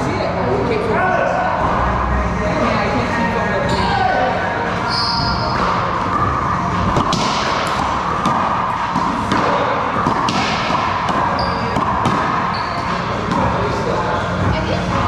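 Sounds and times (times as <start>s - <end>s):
steady background hum: 0.0s - 15.0s
racquetball hits echoing: 5.1s - 6.2s, 6.8s - 14.2s.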